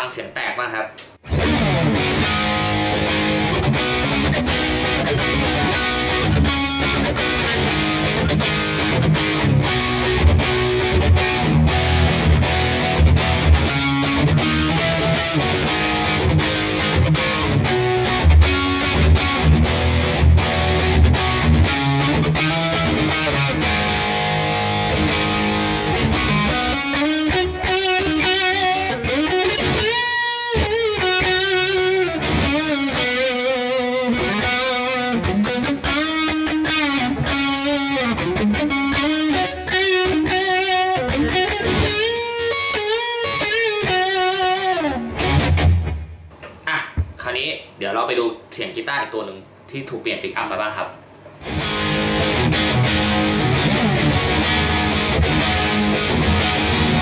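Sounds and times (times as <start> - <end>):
distorted electric guitar: 0.0 - 47.8, 51.0 - 57.0.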